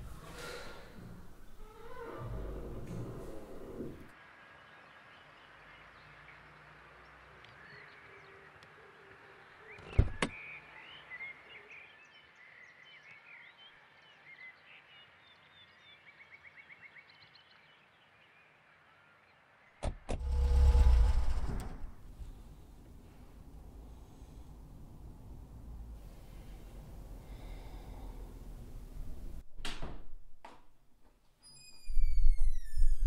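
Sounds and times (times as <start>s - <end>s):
loud low rumble: 20.2s - 23.0s.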